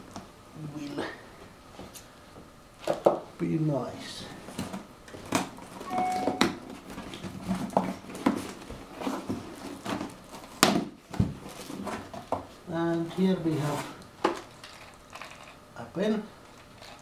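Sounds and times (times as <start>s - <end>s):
cardboard scraping and rustling: 6.6s - 14.0s.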